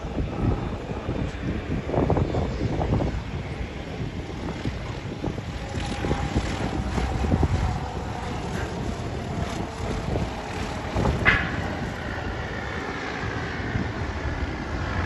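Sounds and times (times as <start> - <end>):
propeller plane droning: 0.0 - 15.0
wind rumble on microphone: 0.0 - 15.0.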